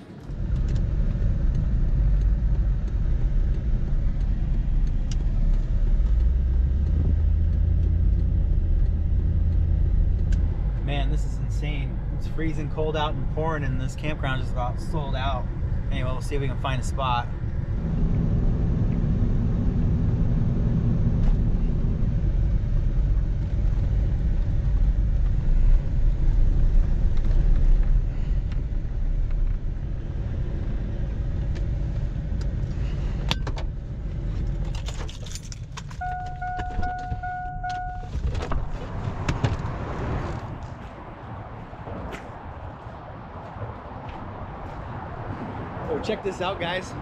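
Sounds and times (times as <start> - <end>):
passing road traffic: 0.0 - 47.0
truck rumbling inside cab: 0.0 - 47.0
sharp clicks: 1.5 - 10.8
keys jingling: 34.7 - 37.1
electronic beep: 36.0 - 38.1.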